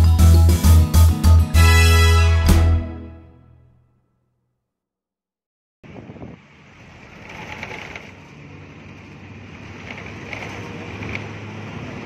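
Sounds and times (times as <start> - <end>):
wind on microphone: 5.8 - 6.6
low engine hum: 5.8 - 12.0
road traffic noise: 5.8 - 12.0.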